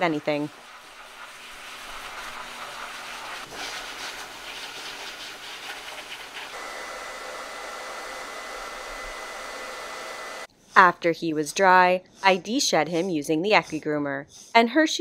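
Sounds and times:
pet dryer blowing air: 0:01.6 - 0:10.5.

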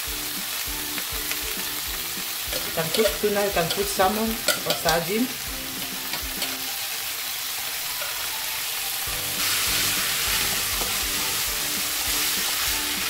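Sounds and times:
oil sizzling in a frying pan: 0:00.0 - 0:13.0.

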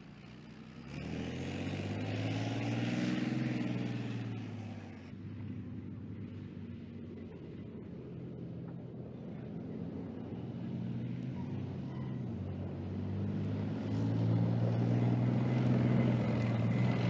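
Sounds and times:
tank diesel engine running: 0:03.6 - 0:17.0.

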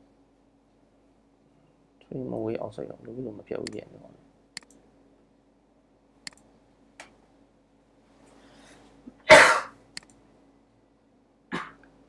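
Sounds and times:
mouse click: 0:06.2 - 0:07.2
person coughing: 0:09.2 - 0:09.8, 0:11.5 - 0:11.9.

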